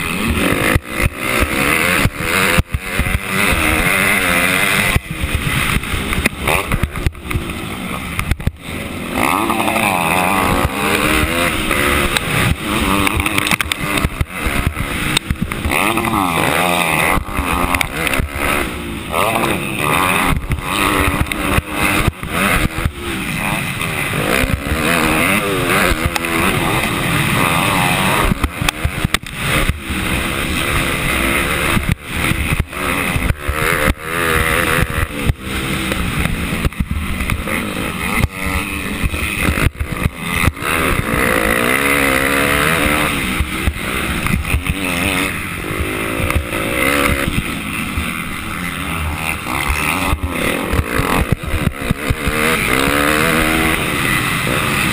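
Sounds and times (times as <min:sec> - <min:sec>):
motocross bike engine revving: 0:00.0 - 0:54.9.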